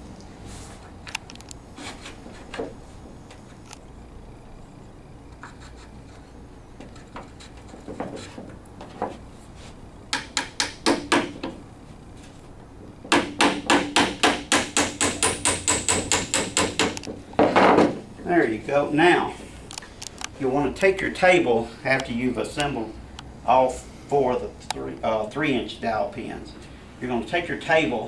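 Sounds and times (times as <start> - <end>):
hammer tapping wooden pin: 10.1 - 11.6, 13.1 - 17.1.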